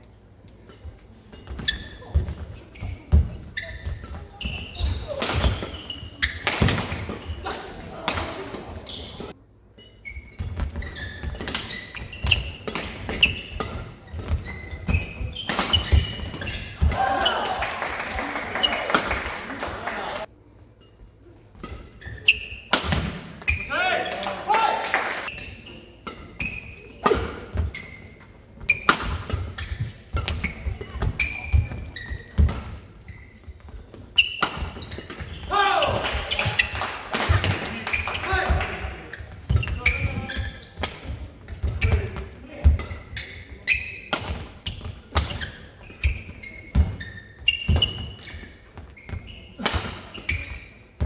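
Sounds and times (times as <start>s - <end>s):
shoes squeaking on court floor: 0.6s - 17.6s, 18.3s - 18.9s, 20.8s - 22.7s, 25.2s - 51.0s
racket hitting shuttlecock: 3.1s - 8.7s, 11.2s - 17.4s, 28.7s - 32.9s, 34.2s - 38.8s, 49.6s - 50.7s.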